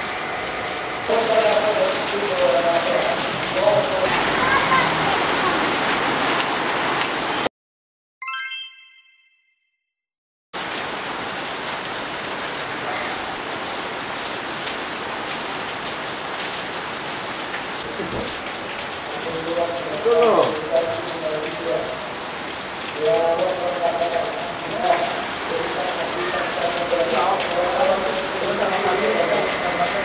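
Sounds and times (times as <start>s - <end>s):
heavy rain hissing: 0.0s - 7.5s, 10.6s - 30.0s
bright chime ringing: 8.2s - 9.7s.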